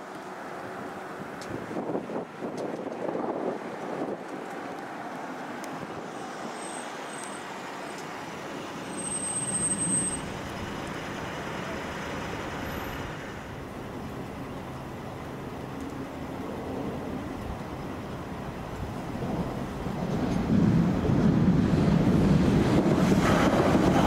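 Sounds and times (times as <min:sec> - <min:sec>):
vehicle noise: 0:00.0 - 0:24.0
thin high squeal: 0:08.8 - 0:10.3.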